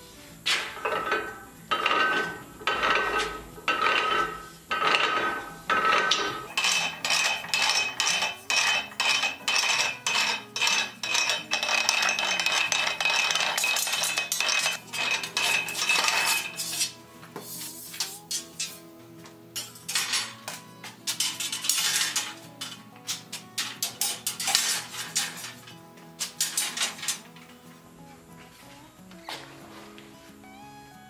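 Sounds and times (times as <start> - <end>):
metal clanking from bender gears: 0.5 - 16.8, 19.6 - 27.5
ringing steel: 0.7 - 17.0.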